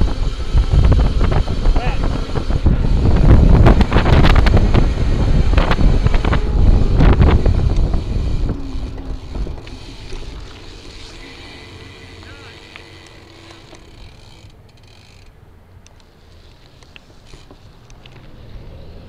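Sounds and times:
wind buffeting microphone: 0.0 - 12.2
low road rumble: 0.0 - 19.0.

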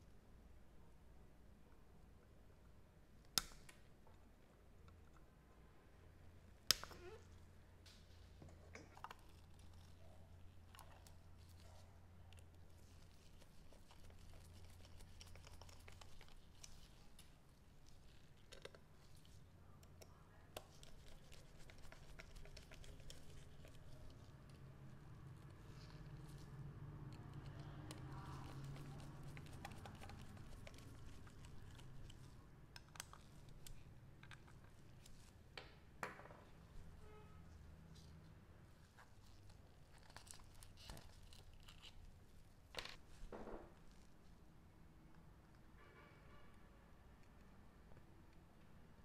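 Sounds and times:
faint small clicks and rustles: 6.3 - 35.6, 37.9 - 44.5.

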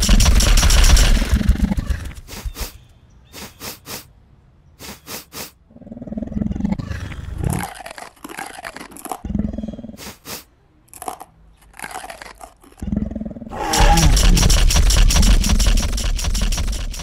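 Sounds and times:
crunching clicks: 0.0 - 2.7, 7.5 - 9.2, 10.8 - 12.8, 13.5 - 17.0
cartoon dinosaur sniffs: 2.1 - 4.1, 4.8 - 5.6, 10.0 - 10.5
dinosaur growl: 12.8 - 15.9.

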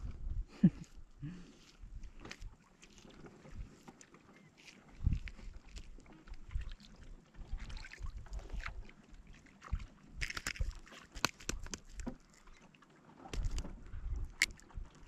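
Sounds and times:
wind buffeting microphone: 0.0 - 1.3, 5.0 - 6.7, 13.4 - 15.0.

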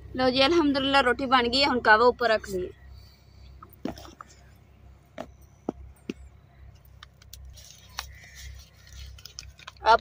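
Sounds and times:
plastic containers clicking and clinking: 7.0 - 10.0
paper packet rustling: 7.1 - 10.0.

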